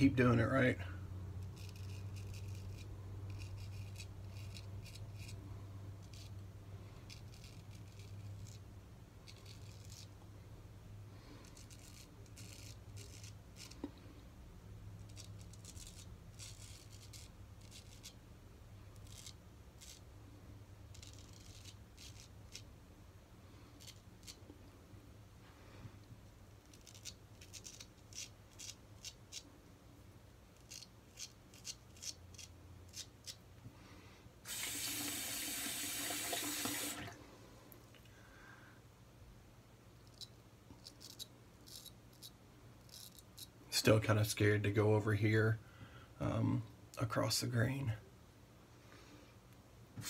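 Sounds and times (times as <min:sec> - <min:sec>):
low steady hum: 0:00.0 - 0:50.0
razor scraping stubble: 0:01.4 - 0:05.4, 0:06.0 - 0:10.2, 0:11.3 - 0:14.0, 0:15.0 - 0:18.2, 0:18.9 - 0:20.1, 0:20.9 - 0:22.7, 0:23.7 - 0:24.4, 0:26.5 - 0:29.5, 0:30.6 - 0:33.4, 0:40.1 - 0:44.9.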